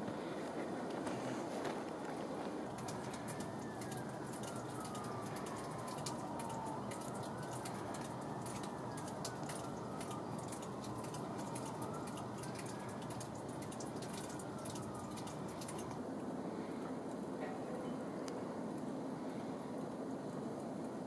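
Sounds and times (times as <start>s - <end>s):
water dripping: 2.0s - 16.1s.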